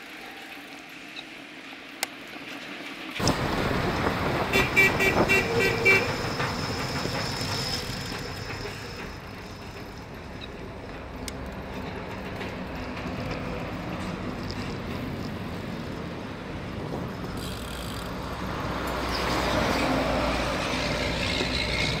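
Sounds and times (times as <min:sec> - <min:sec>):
road traffic: 0:00.0 - 0:22.0
wind noise: 0:03.2 - 0:07.5
motor vehicle approaching: 0:03.2 - 0:22.0.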